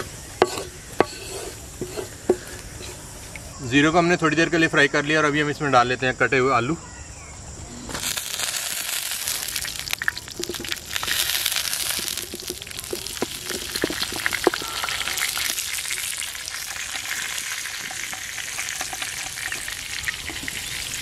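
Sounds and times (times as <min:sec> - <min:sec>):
hot oil sizzling loudly: 0:07.9 - 0:21.0
oil popping and ticking: 0:07.9 - 0:21.0.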